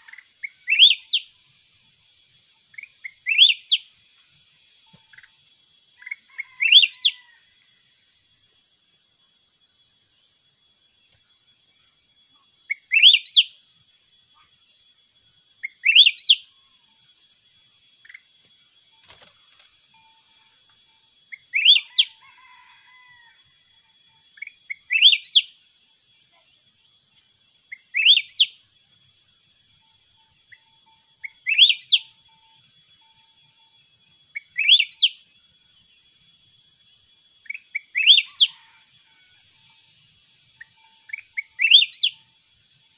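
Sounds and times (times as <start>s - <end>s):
bird singing whistled phrases: 0.0s - 1.3s, 2.8s - 3.8s, 12.7s - 13.5s, 15.6s - 16.4s, 21.4s - 22.1s, 24.7s - 25.5s, 27.7s - 28.5s, 31.2s - 32.1s, 34.4s - 35.2s, 37.5s - 38.6s, 41.1s - 42.2s
high insect drone: 0.0s - 42.9s.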